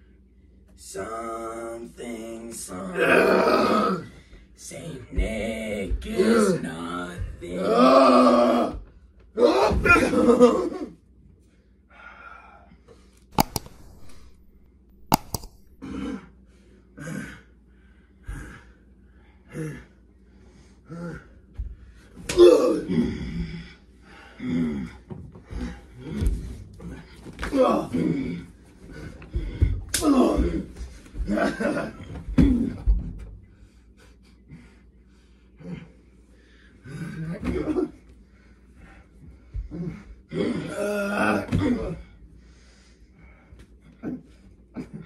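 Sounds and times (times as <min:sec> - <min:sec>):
wrestlers grunting and yelling: 0:02.7 - 0:04.1, 0:04.7 - 0:10.9, 0:22.2 - 0:23.7, 0:25.6 - 0:32.8, 0:36.9 - 0:38.0, 0:39.7 - 0:42.1
heavy breaths and groans: 0:02.7 - 0:10.8, 0:11.6 - 0:45.0
faint breathing: 0:42.2 - 0:43.7.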